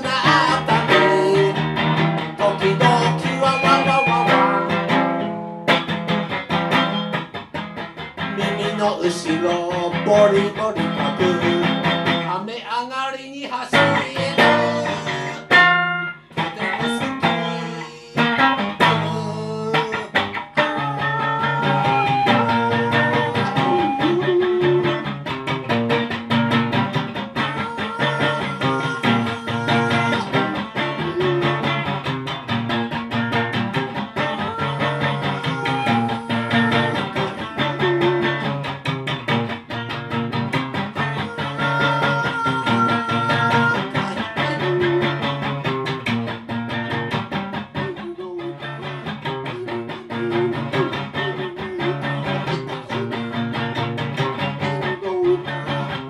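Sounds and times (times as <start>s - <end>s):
man singing into microphone: 0.0s - 1.7s, 2.4s - 4.9s, 8.4s - 15.5s, 16.4s - 25.2s, 27.4s - 32.0s, 34.2s - 38.6s, 41.0s - 45.5s, 47.8s - 53.6s, 54.4s - 56.0s
amplified guitar strumming: 0.0s - 12.5s, 13.7s - 56.0s.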